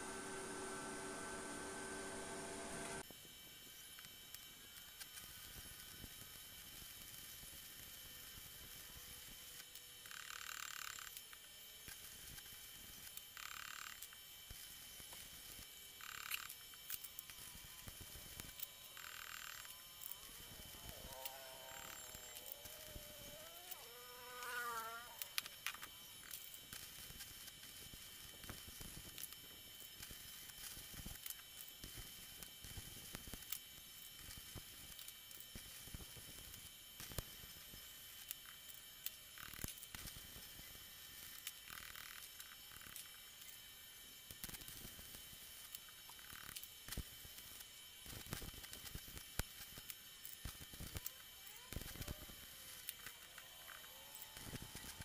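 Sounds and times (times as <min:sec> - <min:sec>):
arc welding crackle: 0:00.0 - 0:55.0
metal shaft on concrete floor: 0:16.0 - 0:26.4.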